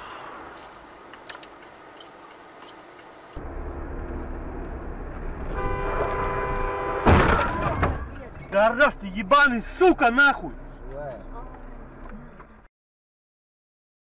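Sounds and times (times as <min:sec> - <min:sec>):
car driving rumble: 0:00.0 - 0:12.7
car horn sounding: 0:05.5 - 0:07.7.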